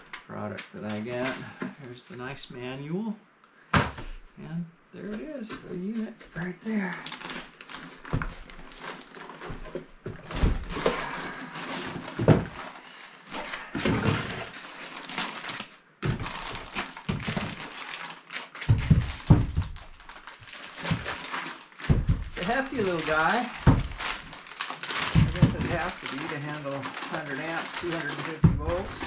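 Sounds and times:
cardboard and foam rustling: 0:00.0 - 0:02.6, 0:05.0 - 0:29.0
dull thunks on wooden floor: 0:21.8 - 0:22.4.

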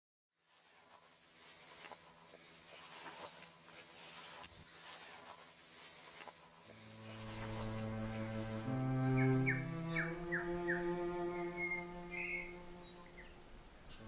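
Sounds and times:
faint rustles and clicks: 0:00.4 - 0:08.6
insect chorus: 0:00.4 - 0:14.0
low sustained music note: 0:06.8 - 0:14.0.

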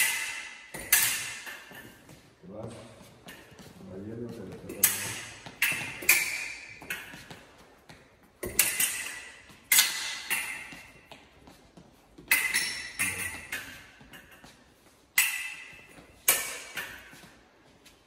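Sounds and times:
steel foil blades clashing: 0:00.0 - 0:01.9.

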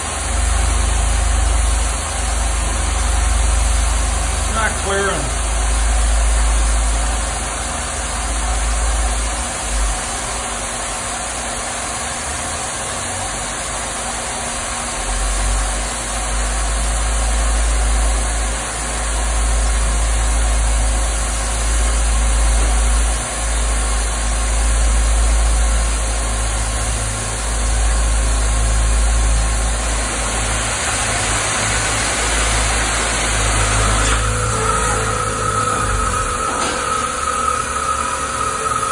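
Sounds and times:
low machine rumble: 0:00.0 - 0:11.0, 0:14.7 - 0:38.9
cutting torch hissing: 0:29.4 - 0:38.9
high steady tone: 0:32.2 - 0:38.9.

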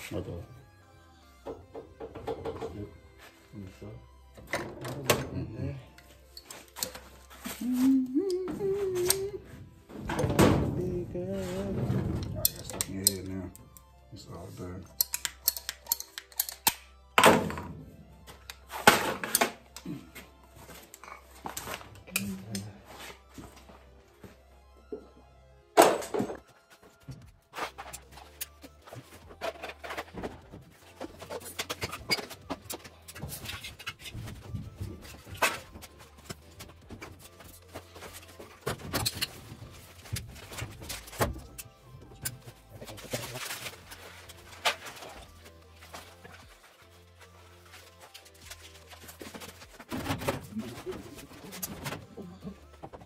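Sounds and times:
knocks and clatter of parts: 0:01.4 - 0:02.9, 0:15.0 - 0:17.8, 0:25.8 - 0:46.6, 0:47.7 - 0:53.0.

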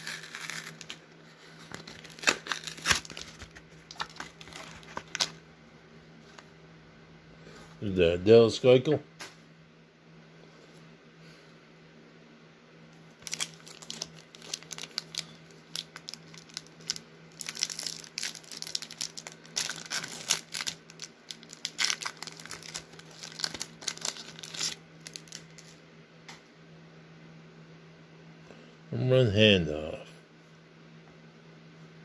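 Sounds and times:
card pack wrapper crinkling and tearing: 0:00.0 - 0:01.0, 0:01.6 - 0:05.4, 0:13.2 - 0:25.8.

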